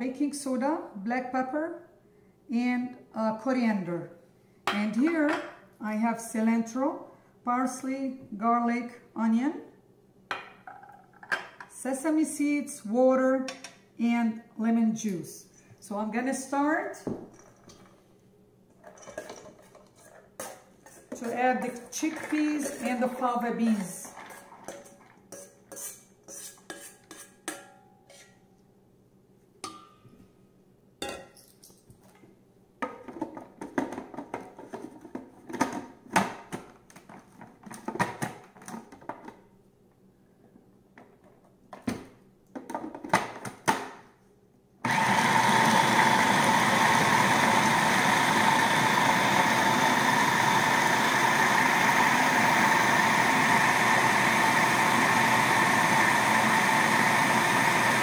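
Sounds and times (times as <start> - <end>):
food processor motor grinding: 44.8 - 58.0.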